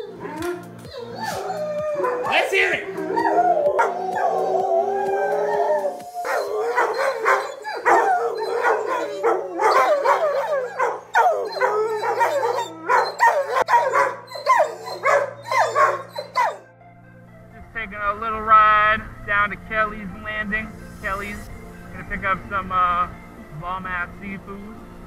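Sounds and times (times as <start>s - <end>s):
dog howling and yipping: 0.0s - 16.7s
background music with low notes: 0.0s - 25.0s.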